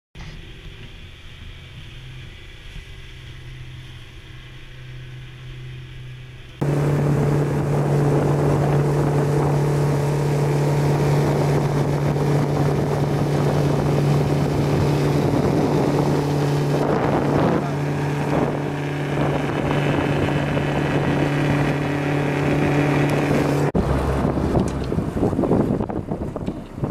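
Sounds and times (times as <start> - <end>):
boat engine running: 0.2 - 26.9
water noise: 0.2 - 26.9
wind buffeting microphone: 6.6 - 26.9.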